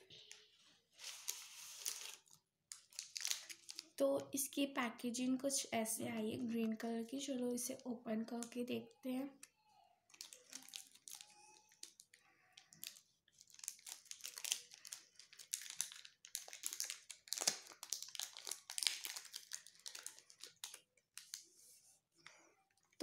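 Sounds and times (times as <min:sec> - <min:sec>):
foil crinkling: 0:00.3 - 0:04.0, 0:10.1 - 0:21.5.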